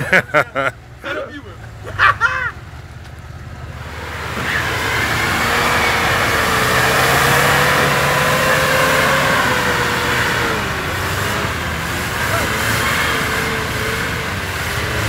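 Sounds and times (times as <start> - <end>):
engine revving under load: 3.5 - 15.0.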